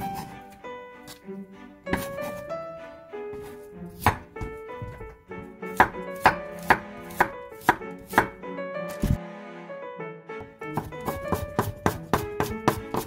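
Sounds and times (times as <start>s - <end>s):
background music: 0.0s - 13.0s
knife slicing on cutting board: 1.9s - 2.5s, 3.4s - 5.0s, 5.8s - 8.3s, 8.9s - 9.2s, 10.8s - 13.0s.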